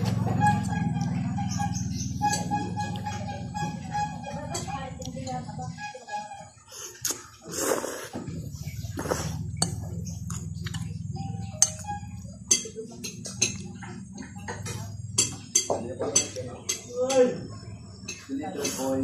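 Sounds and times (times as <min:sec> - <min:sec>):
steady low hum: 0:00.0 - 0:19.0
person slurping noodles: 0:06.9 - 0:08.2, 0:08.9 - 0:09.5
person chewing: 0:06.9 - 0:11.0
metal fork clinking on bowl: 0:11.5 - 0:13.6.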